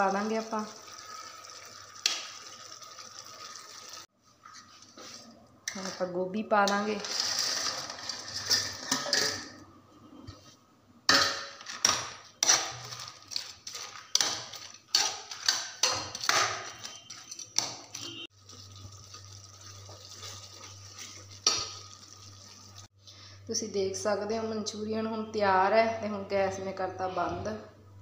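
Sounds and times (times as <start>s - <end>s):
metal spoon scraping pan: 12.4s - 18.3s.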